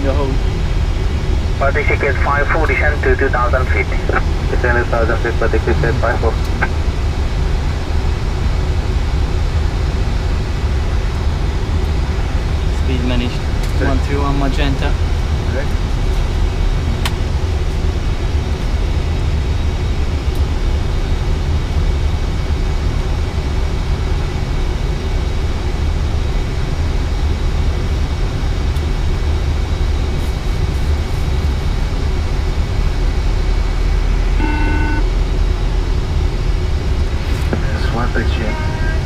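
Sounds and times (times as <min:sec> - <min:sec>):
cockpit airflow and air-conditioning: 0:00.0 - 0:39.0
short tone: 0:34.1 - 0:35.2, 0:38.3 - 0:39.0.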